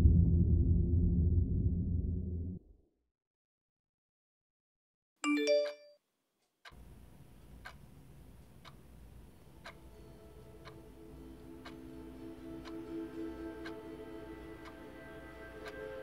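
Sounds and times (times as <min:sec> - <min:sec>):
smartphone notification chime: 0:05.2 - 0:06.0
faint room noise: 0:06.2 - 0:16.0
clock ticking: 0:06.6 - 0:16.0.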